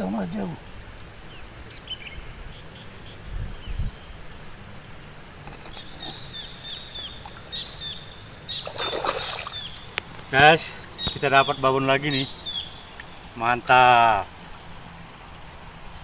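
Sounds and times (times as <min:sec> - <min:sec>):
high insect hum: 0:00.0 - 0:16.0
bird chirping: 0:01.2 - 0:16.0
splashing in muddy water: 0:05.4 - 0:11.3.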